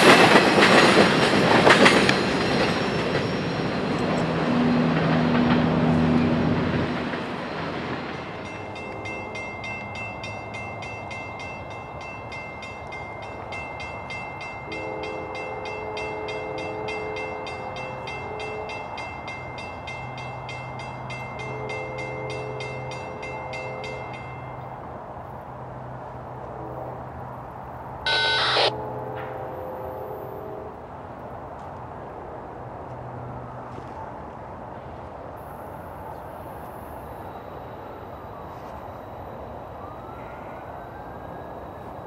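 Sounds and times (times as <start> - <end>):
train horn blasts: 14.7 - 18.9, 28.1 - 30.9
crossing bell ringing rapidly: 28.1 - 28.7
sharp burst: 28.1 - 28.7.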